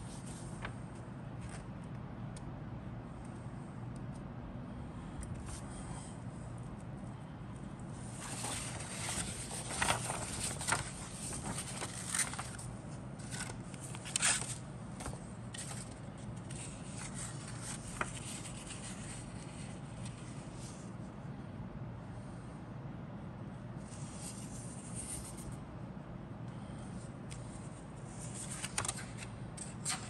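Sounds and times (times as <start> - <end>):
paper rustling and crinkling: 0.0 - 1.7, 8.0 - 20.9, 27.4 - 30.0.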